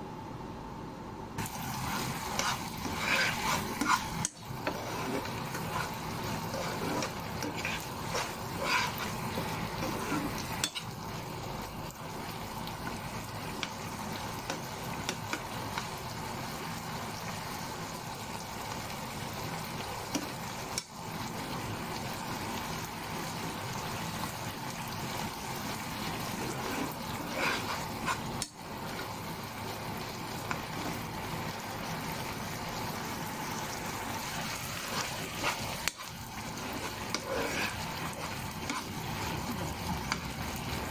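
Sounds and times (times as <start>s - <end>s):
metal spoon scraping a pan: 1.4s - 11.0s, 25.6s - 28.6s, 34.3s - 40.9s
meat sizzling in a frying pan: 1.4s - 40.9s.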